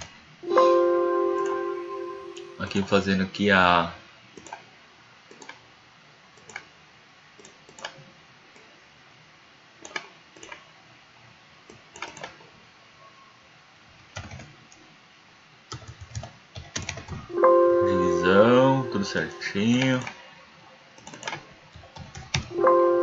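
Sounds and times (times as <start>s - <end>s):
computer mouse clicks: 4.4s - 4.6s, 5.3s - 5.6s, 6.4s - 6.7s, 7.4s - 8.7s, 9.8s - 10.7s, 11.7s - 12.4s, 14.1s - 14.9s, 15.7s - 17.2s, 19.8s - 20.2s, 21.0s - 22.5s
keyboard keystrokes: 15.7s - 17.2s.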